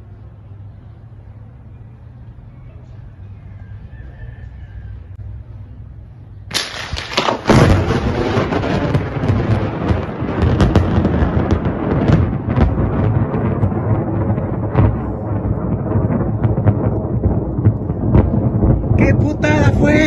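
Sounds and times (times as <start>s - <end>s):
thunder cracking and rumbling: 6.4s - 20.0s.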